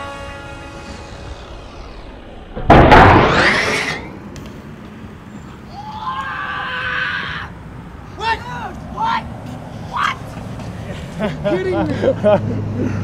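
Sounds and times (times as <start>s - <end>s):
noise rising in pitch: 0.1s - 5.2s
bike hitting concrete bang: 2.5s - 4.2s.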